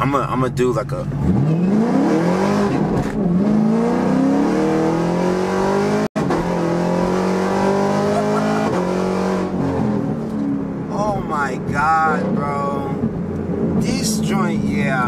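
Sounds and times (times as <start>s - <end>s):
car engine accelerating: 0.8s - 15.0s.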